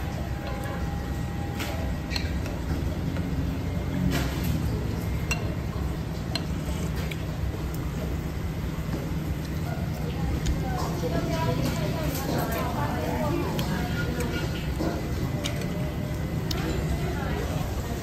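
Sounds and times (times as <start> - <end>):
low background hum: 0.0 - 18.0
spoon clinking against a bowl: 5.2 - 5.6.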